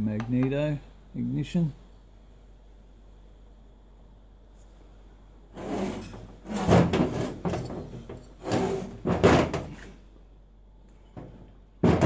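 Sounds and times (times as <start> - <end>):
metal scraping and knocking on metal: 5.6 - 10.0, 11.1 - 12.0.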